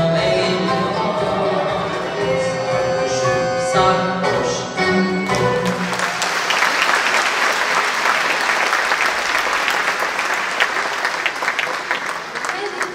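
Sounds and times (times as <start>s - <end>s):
choir and ensemble held note: 0.0s - 6.8s
audience applauding: 5.2s - 12.9s.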